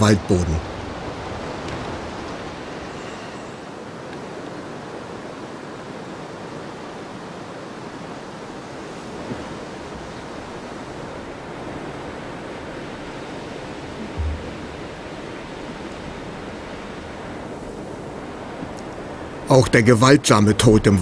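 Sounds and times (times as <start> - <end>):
steady rushing noise: 7.5 - 21.0
low thump: 14.0 - 15.0.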